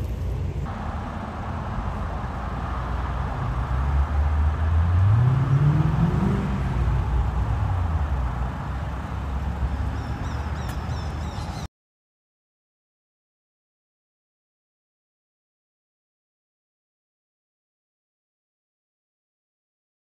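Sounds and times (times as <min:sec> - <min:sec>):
cars driving past: 0:00.0 - 0:11.7
vehicle engine accelerating: 0:00.0 - 0:11.7.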